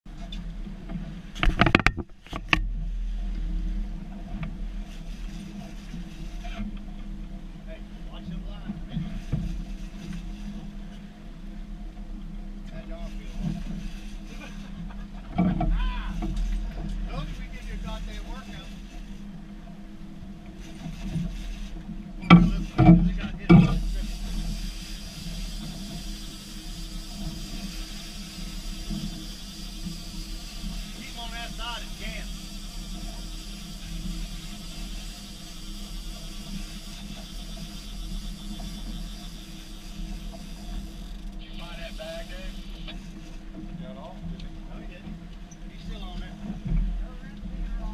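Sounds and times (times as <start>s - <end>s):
wind: 0.0s - 47.9s
outboard motors humming: 0.1s - 47.9s
sharp knocks and clatter: 1.4s - 2.7s
man shouting: 15.8s - 16.2s
water rushing: 20.6s - 43.2s.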